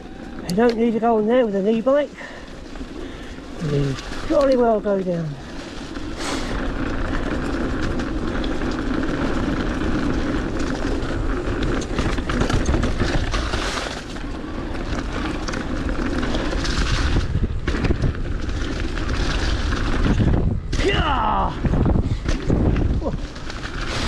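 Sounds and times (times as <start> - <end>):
bike rattling and knocking: 0.0 - 24.0
tyres rumbling on dirt and leaves: 0.0 - 24.0.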